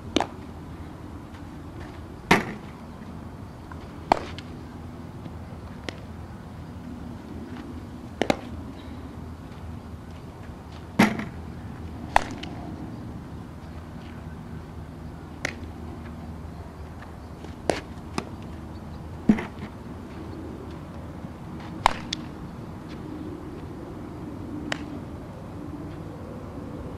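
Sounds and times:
steady background hiss: 0:00.0 - 0:26.9
bat hitting ball: 0:00.1 - 0:00.4, 0:02.3 - 0:02.7, 0:04.1 - 0:04.5, 0:08.2 - 0:08.5, 0:11.0 - 0:11.4, 0:12.1 - 0:12.6, 0:19.2 - 0:19.7, 0:21.8 - 0:22.3
ball into leather glove: 0:19.3 - 0:19.7.

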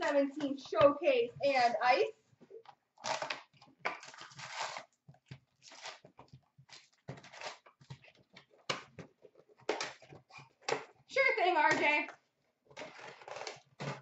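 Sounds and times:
card and foil rustling: 0:04.0 - 0:04.9, 0:05.5 - 0:08.3.

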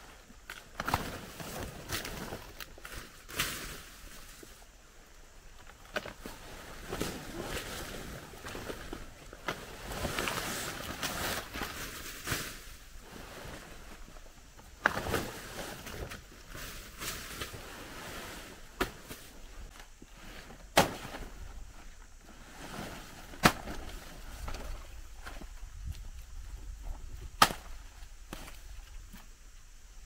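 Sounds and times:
rustling: 0:05.4 - 0:29.4
blade chopping plant stalks: 0:20.7 - 0:21.3, 0:23.3 - 0:24.8, 0:27.3 - 0:28.6.

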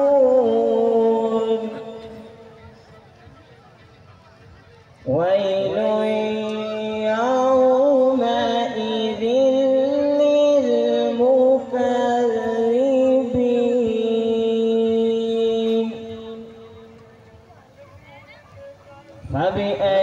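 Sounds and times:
person chanting recitation: 0:00.0 - 0:02.9, 0:05.0 - 0:17.2, 0:19.2 - 0:20.0.

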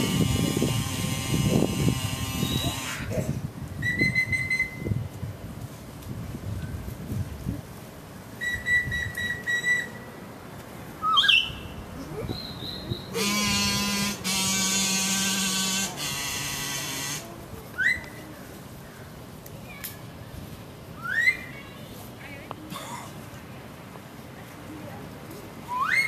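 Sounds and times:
buzzy reed instrument notes: 0:00.0 - 0:03.2, 0:12.7 - 0:17.4
whistled chirps: 0:03.8 - 0:04.9, 0:08.4 - 0:10.1, 0:11.0 - 0:11.6, 0:12.3 - 0:13.1, 0:21.0 - 0:21.5, 0:25.7 - 0:26.0.

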